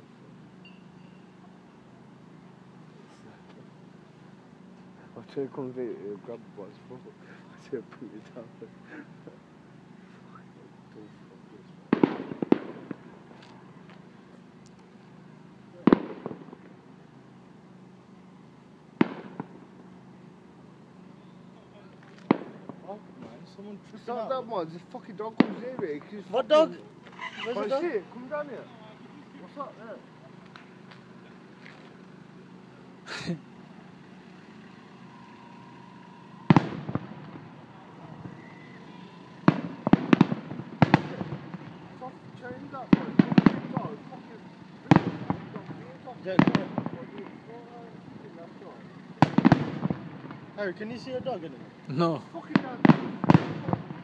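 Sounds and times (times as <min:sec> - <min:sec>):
firework shells bursting: 0:11.9 - 0:14.0, 0:15.8 - 0:16.8, 0:19.0 - 0:19.8, 0:22.0 - 0:23.3, 0:34.2 - 0:47.5, 0:49.2 - 0:51.1, 0:52.5 - 0:54.0
small firework pops: 0:11.9 - 0:14.0, 0:15.8 - 0:16.8, 0:19.0 - 0:19.6, 0:21.9 - 0:23.4, 0:30.4 - 0:32.0, 0:39.4 - 0:41.8, 0:42.9 - 0:44.0, 0:44.9 - 0:47.4, 0:49.2 - 0:50.5, 0:52.5 - 0:54.0.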